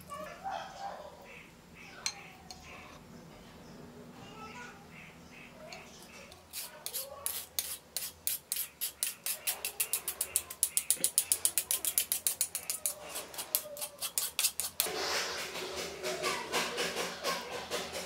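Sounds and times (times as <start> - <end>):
spoon scraping a mesh strainer: 5.7 - 18.0.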